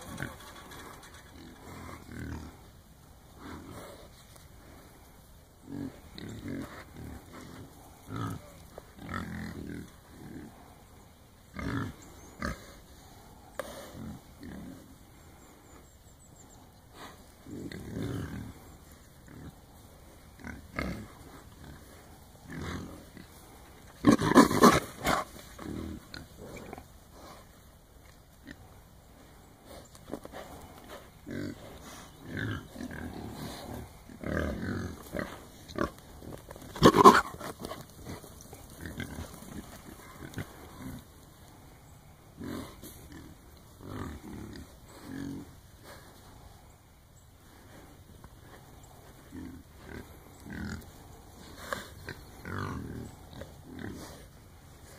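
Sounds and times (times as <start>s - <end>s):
wild hogs calling: 28.4s - 54.9s.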